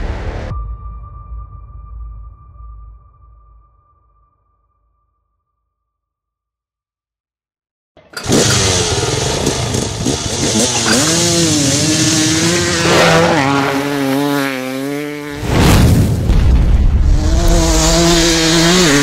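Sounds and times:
quad engine revving: 8.0 - 15.5, 17.1 - 19.0.

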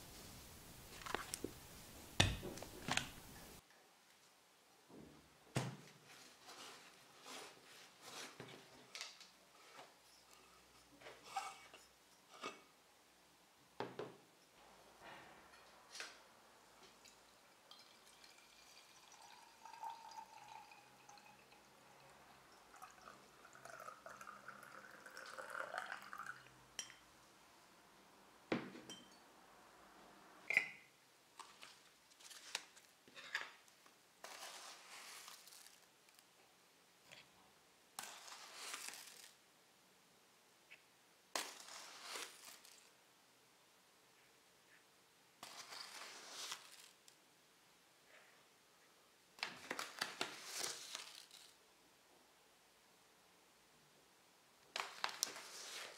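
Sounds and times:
ground coffee pouring: 17.0 - 26.6, 34.2 - 35.9, 38.0 - 39.4, 41.4 - 42.9, 45.4 - 47.0, 49.7 - 51.6
water pouring into vessel: 17.7 - 26.5.

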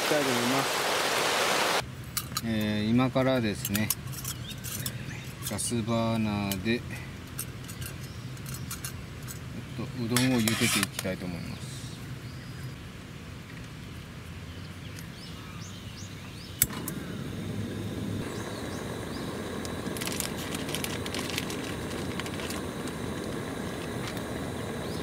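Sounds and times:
gas burner flame rushing: 16.6 - 25.0.

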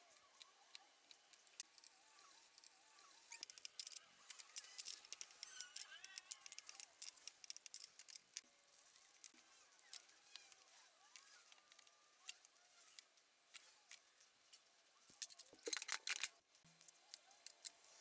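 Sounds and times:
clicks and scrapes of tools: 9.2 - 18.0.

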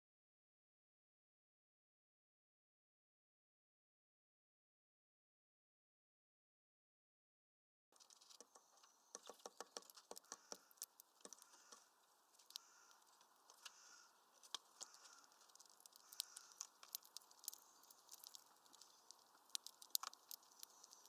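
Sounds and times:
finches tapping on feeder: 8.1 - 21.0.

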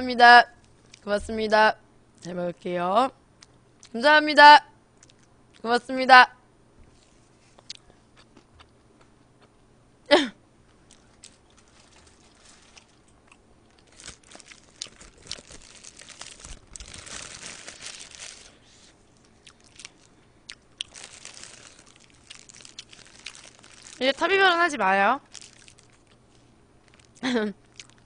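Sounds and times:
paper wrapper rustling and crinkling: 11.2 - 13.1, 13.7 - 20.1, 20.9 - 27.2.

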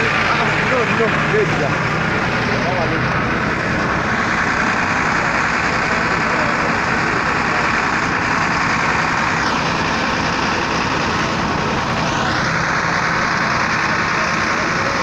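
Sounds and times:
fire engine running: 0.0 - 15.0.

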